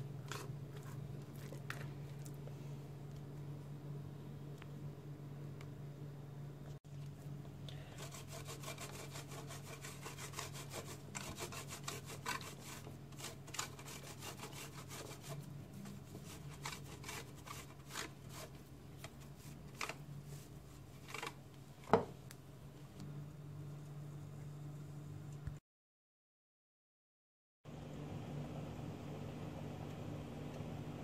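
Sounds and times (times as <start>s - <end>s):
dough rasping on box grater: 0.3s - 1.0s, 8.0s - 21.4s.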